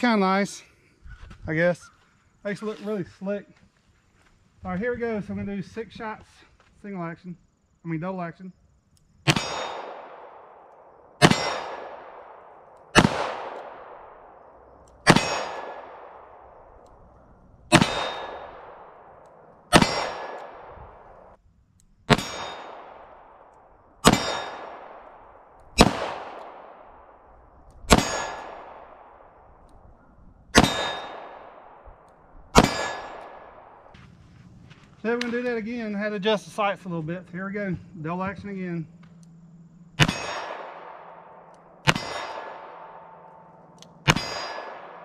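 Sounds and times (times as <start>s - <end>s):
revolver shots ringing: 11.2s - 12.2s, 15.1s - 16.2s, 17.7s - 19.1s, 19.7s - 20.8s, 30.6s - 31.7s, 40.0s - 45.0s.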